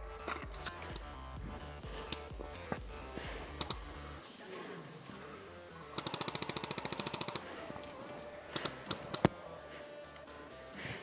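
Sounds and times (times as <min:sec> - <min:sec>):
sharp clicks: 0:03.5 - 0:05.2, 0:05.8 - 0:10.3
airsoft gun full-auto burst: 0:06.0 - 0:07.6.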